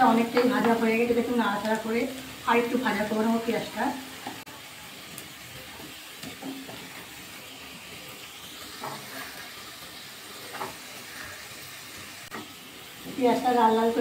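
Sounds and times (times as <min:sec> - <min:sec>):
onions sizzling in hot oil: 0:00.0 - 0:14.0
wooden spatula scraping: 0:08.8 - 0:09.5.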